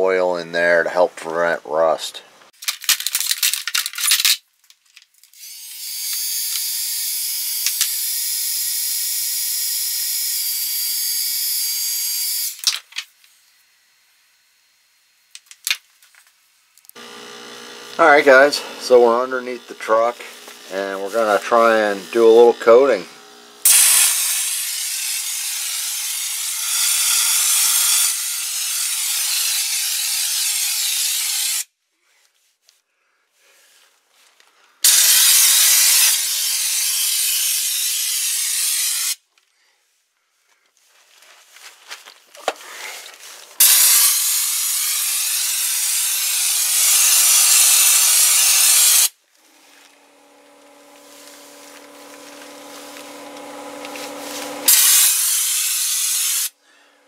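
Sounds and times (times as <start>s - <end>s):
spray gun hissing: 18.0s - 26.0s, 34.8s - 37.6s, 43.6s - 49.1s, 50.7s - 56.5s.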